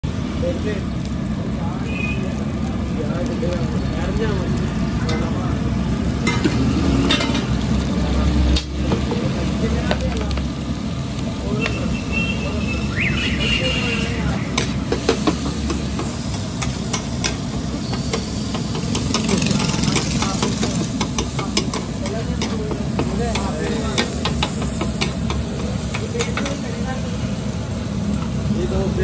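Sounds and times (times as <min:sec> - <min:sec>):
onions sizzling on griddle: 0:00.0 - 0:29.0.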